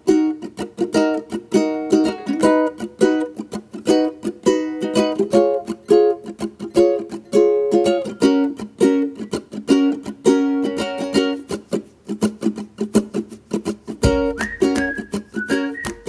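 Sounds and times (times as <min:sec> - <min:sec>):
plucked string instrument tune: 0:00.0 - 0:16.0.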